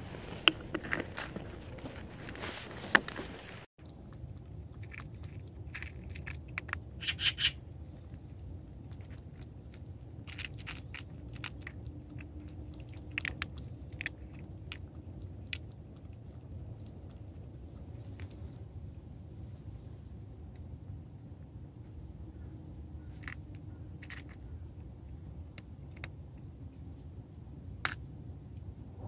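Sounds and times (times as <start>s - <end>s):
cats crunching dry kibble: 0.0s - 7.0s, 7.9s - 21.7s, 23.1s - 26.6s.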